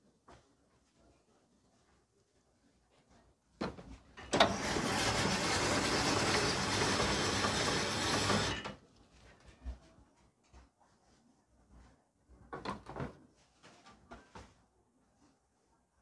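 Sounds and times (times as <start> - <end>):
ice-shaving machine grinding: 4.3 - 8.8.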